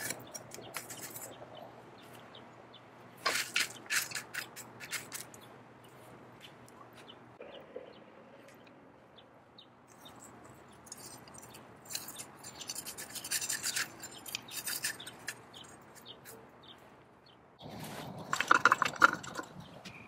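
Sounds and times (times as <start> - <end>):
rapid metal scraping and clicking: 0.0 - 1.4, 3.3 - 5.4, 9.9 - 16.4, 18.2 - 19.7
tongs shifting steel in coals: 0.0 - 1.5, 3.2 - 5.4, 9.9 - 16.4, 18.0 - 20.0
coal fire crackling: 18.2 - 19.5.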